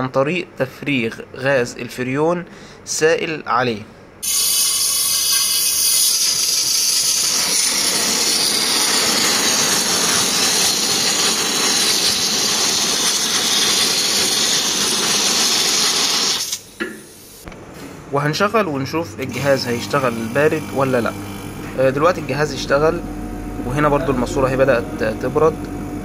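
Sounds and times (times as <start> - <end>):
refrigerant hissing from hose: 4.2 - 17.4.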